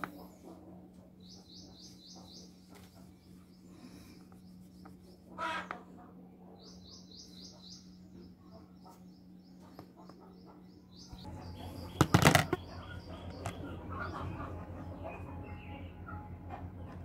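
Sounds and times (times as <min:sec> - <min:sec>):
steady low hum: 0:00.0 - 0:17.0
small bird chirping: 0:06.6 - 0:16.0.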